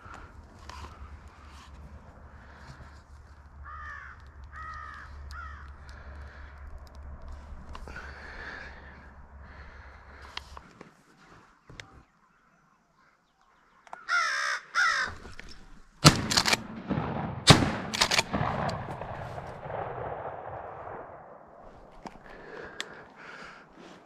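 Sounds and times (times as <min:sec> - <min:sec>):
crow cawing: 0:03.6 - 0:06.6, 0:14.0 - 0:15.4
shotgun shots echoing: 0:16.0 - 0:21.6.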